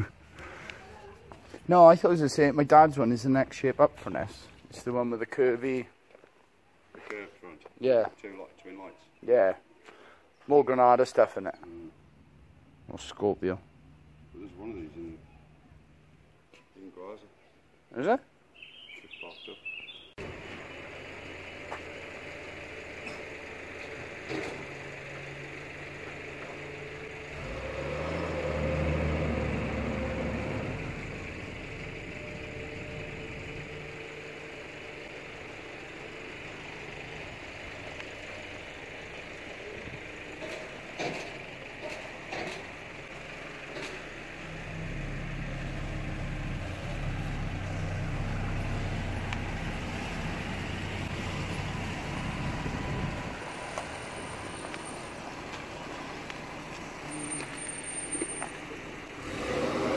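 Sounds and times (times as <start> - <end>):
car engine passing: 20.2 - 59.9
heavy truck engine running: 20.2 - 59.9.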